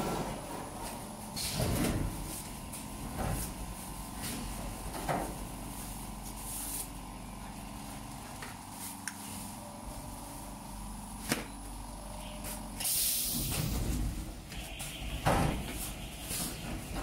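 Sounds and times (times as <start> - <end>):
loud rushing hiss: 12.8 - 14.0.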